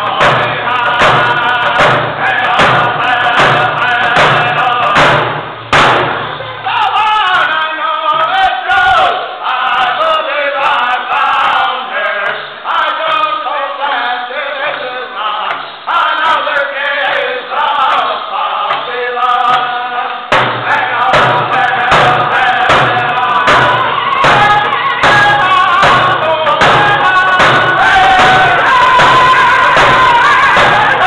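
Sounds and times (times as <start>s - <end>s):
men chanting in unison: 0.0s - 5.2s, 6.7s - 31.0s
hand drums struck with beaters: 0.0s - 6.3s, 20.3s - 31.0s.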